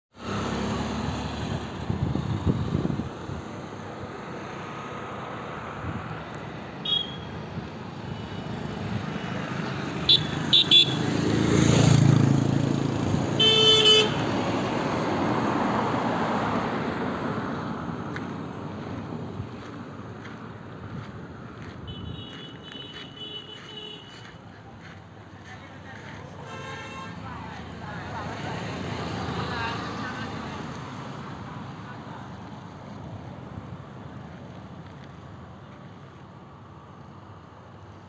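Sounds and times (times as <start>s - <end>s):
vehicle passing loudly: 0.1s - 32.3s
road traffic passing: 0.1s - 38.0s
wind on microphone: 1.6s - 3.6s
car horn honks: 6.8s - 7.4s, 10.0s - 11.0s, 13.4s - 14.2s, 21.8s - 24.3s, 26.4s - 27.2s.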